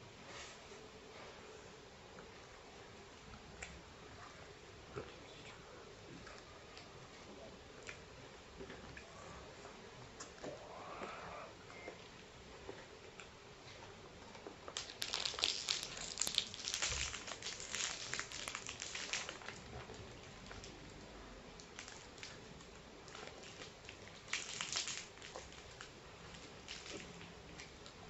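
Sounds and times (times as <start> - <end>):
plastic wrapper crinkling: 14.7 - 20.7, 21.6 - 22.4, 23.1 - 27.8.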